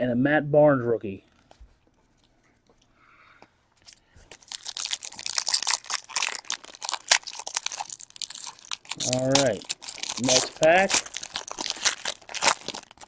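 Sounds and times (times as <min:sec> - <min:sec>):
card pack wrapper crinkling and tearing: 0:04.3 - 0:13.0.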